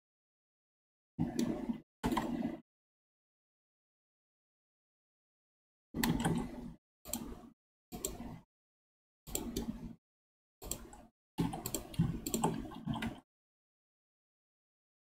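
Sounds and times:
keyboard and mouse clicks: 1.2s - 2.6s, 6.0s - 8.4s, 9.3s - 10.0s, 10.6s - 13.2s.

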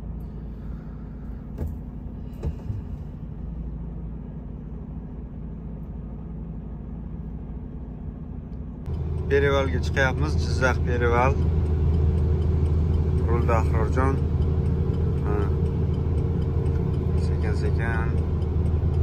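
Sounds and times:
road noise: 0.0s - 19.0s
truck engine droning: 0.0s - 19.0s.

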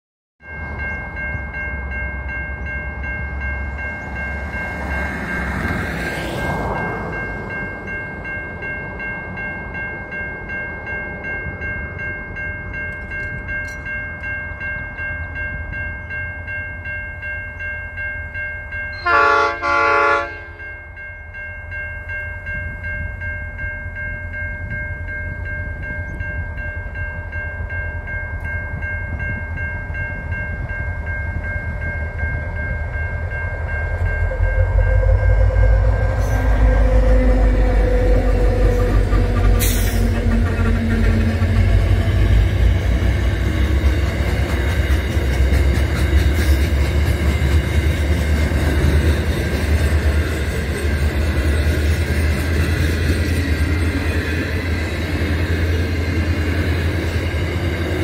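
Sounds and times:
low train rumble: 0.4s - 58.0s
diesel locomotive horn blasts: 18.9s - 20.7s, 34.0s - 42.6s.

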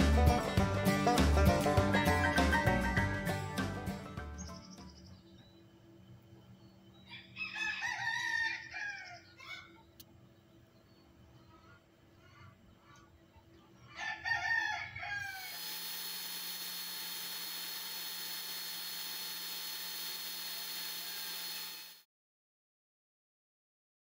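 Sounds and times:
rooster crowing: 7.1s - 9.8s, 13.9s - 15.6s
power drill boring through plastic: 15.4s - 22.1s.

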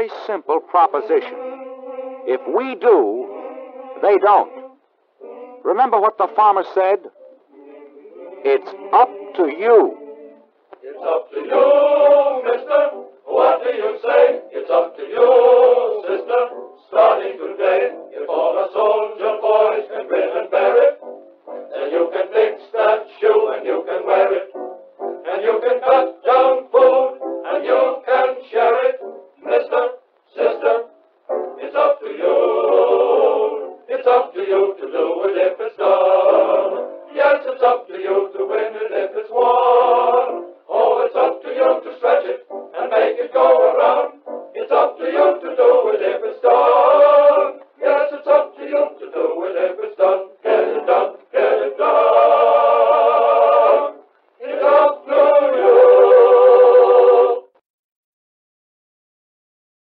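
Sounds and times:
voices singing with music: 0.0s - 57.6s.

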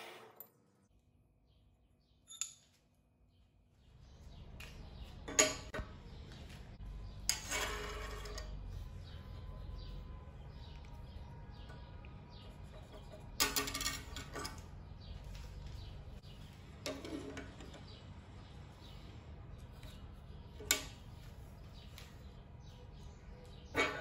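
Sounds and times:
metal tools clattering on steel table: 5.3s - 5.8s, 7.3s - 8.6s, 12.9s - 14.8s, 16.8s - 17.8s, 23.7s - 24.0s.

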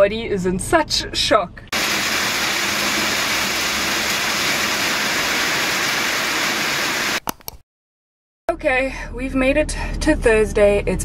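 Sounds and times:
steady rain: 1.8s - 7.2s.

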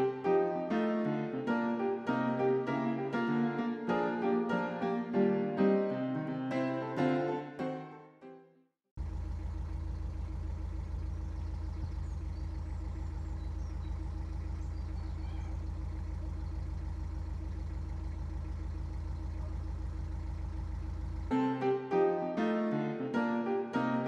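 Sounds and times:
boat engine running: 9.0s - 21.7s.

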